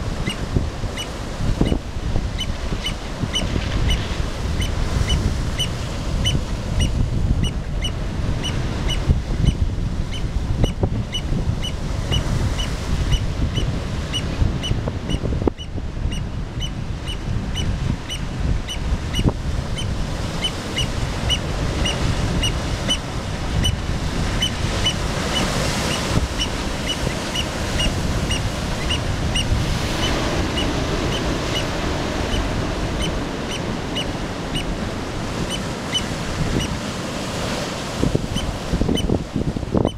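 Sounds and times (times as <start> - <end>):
surf breaking on rocky shore: 16.8 - 39.8.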